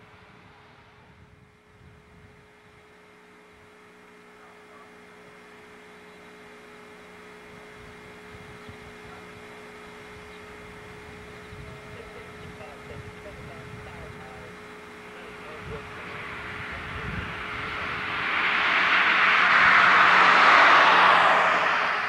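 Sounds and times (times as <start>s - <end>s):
distant jet engines running: 0.0s - 22.0s.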